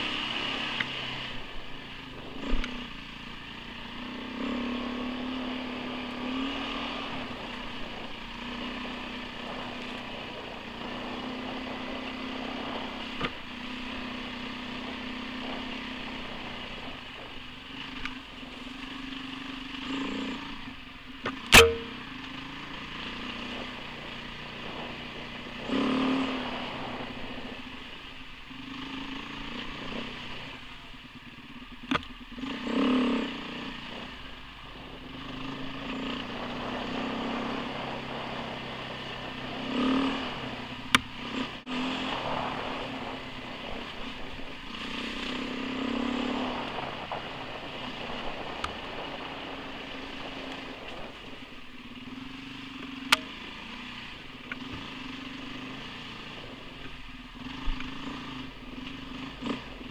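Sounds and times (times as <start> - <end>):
motorcycle engine running: 0.0 - 59.9
sharp knock: 21.5 - 22.0.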